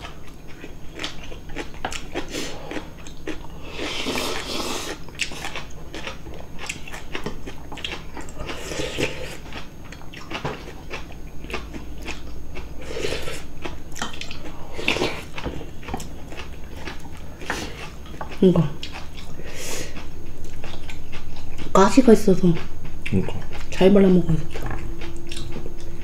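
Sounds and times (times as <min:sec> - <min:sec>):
people chewing: 0:00.0 - 0:26.0.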